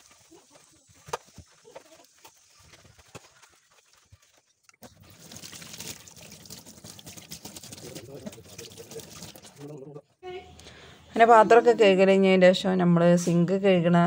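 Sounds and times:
scrubbing steel sink: 0:00.0 - 0:09.8
tap water running into sink: 0:04.8 - 0:09.8.

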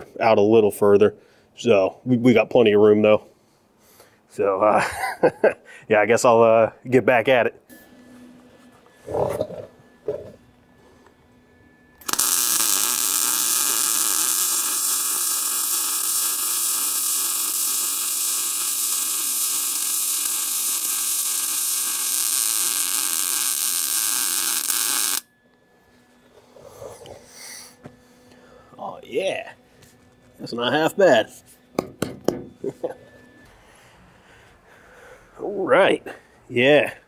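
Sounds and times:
welding arc crackling hiss: 0:12.0 - 0:25.3.

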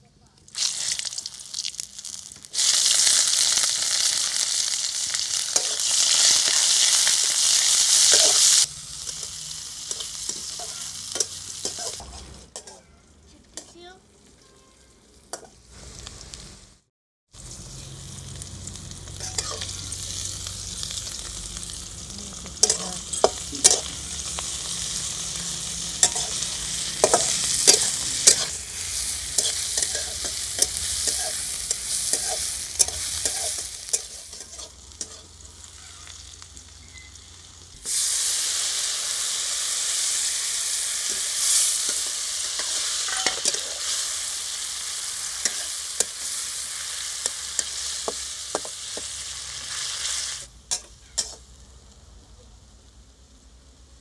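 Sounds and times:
onion and spices sizzling: 0:00.2 - 0:54.0
spatula scraping a metal pan: 0:41.1 - 0:43.9.

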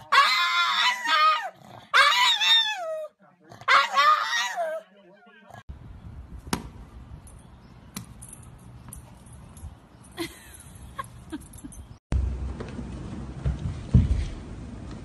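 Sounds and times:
ball bouncing on pavement: 0:06.4 - 0:09.3.

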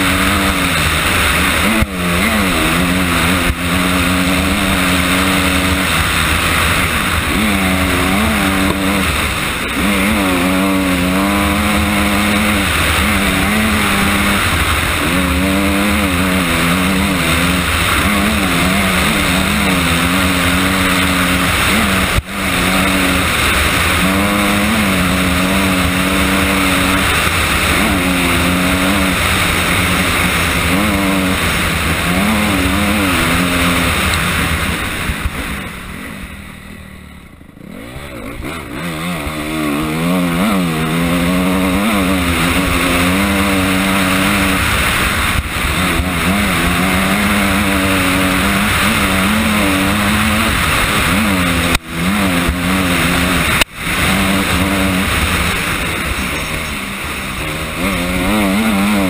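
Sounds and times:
dirt bike engine revving: 0:00.0 - 0:59.0
steady rush of noise: 0:00.0 - 0:59.0.

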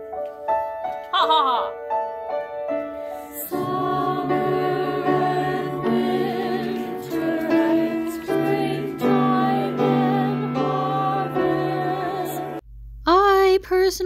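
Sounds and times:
choir singing a hymn: 0:03.2 - 0:12.6.

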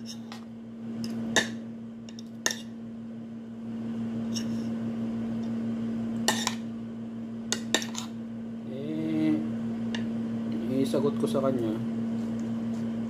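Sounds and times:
steady low hum: 0:00.0 - 0:13.0
cutlery clinking and scraping on plate: 0:06.3 - 0:06.6, 0:07.6 - 0:08.1.

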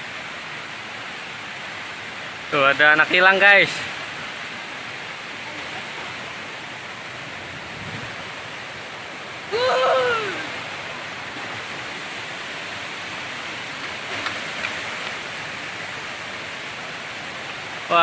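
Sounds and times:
river rushing over rocks: 0:00.0 - 0:18.0
person calling out: 0:09.5 - 0:10.5.

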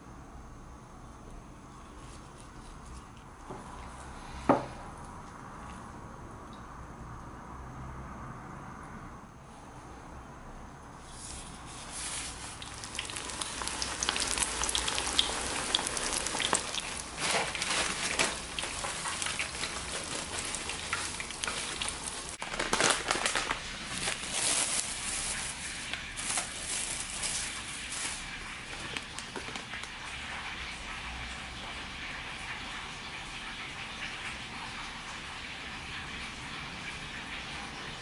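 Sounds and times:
chicken deep-frying in oil: 0:11.0 - 0:38.0.

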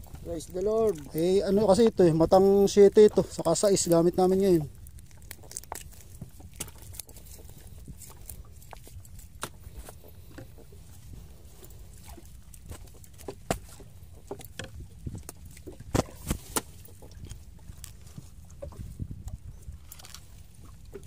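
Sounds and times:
net and floats knocking on hull: 0:12.1 - 0:19.1.

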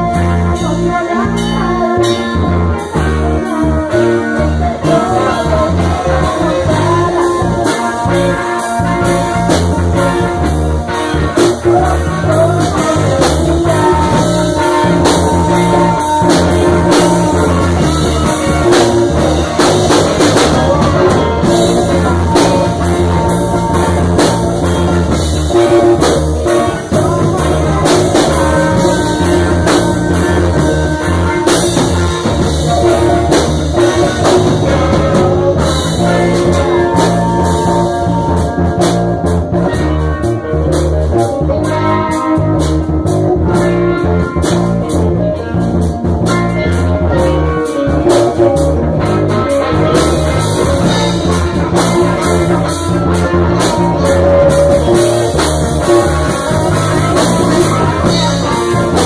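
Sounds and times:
blues band playing: 0:00.0 - 0:59.0
drum kit: 0:00.0 - 0:59.0
guitar: 0:00.0 - 0:59.0.

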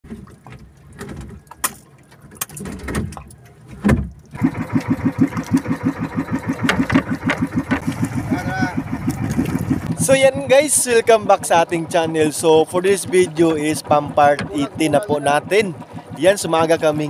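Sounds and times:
boat engine chugging: 0:00.0 - 0:17.0
irregular knocks and rustling: 0:00.1 - 0:04.3, 0:06.6 - 0:08.2.

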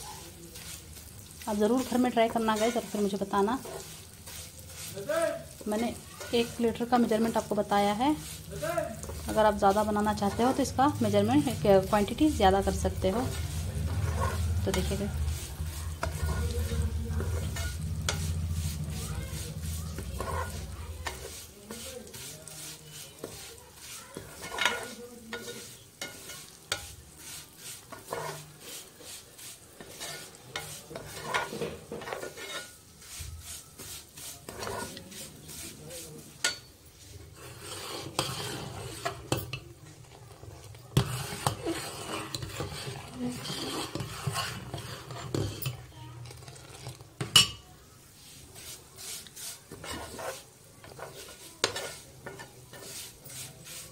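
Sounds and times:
faint sizzle: 0:00.0 - 0:53.9
spoon scraping and tapping pan: 0:01.7 - 0:04.9, 0:05.5 - 0:29.2, 0:29.8 - 0:33.2, 0:33.8 - 0:47.6, 0:48.6 - 0:53.9.

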